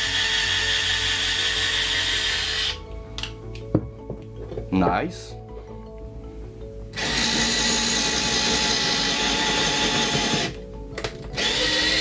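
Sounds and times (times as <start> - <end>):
cordless drill whining into wood: 0.0 - 2.8, 7.0 - 10.6, 11.4 - 12.0.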